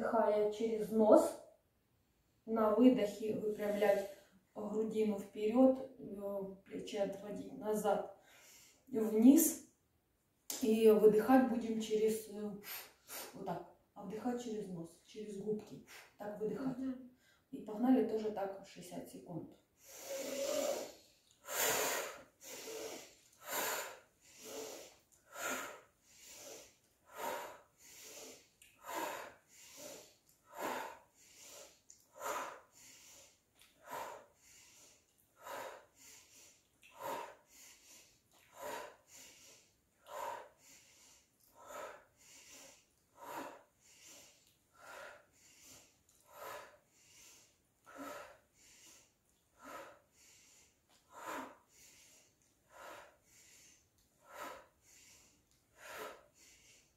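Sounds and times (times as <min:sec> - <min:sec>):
people breathing through the nose: 0:19.8 - 0:56.9.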